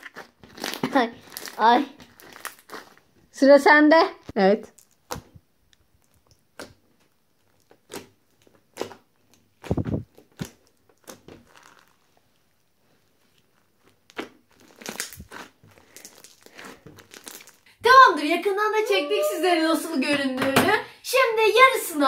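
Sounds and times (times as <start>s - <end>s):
slime crackling and popping: 0.0s - 3.1s, 4.2s - 17.7s.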